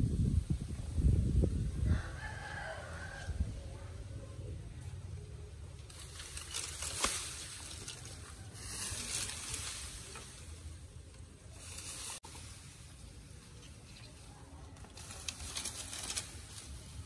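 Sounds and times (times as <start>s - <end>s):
bamboo leaves rustling: 4.8s - 17.0s.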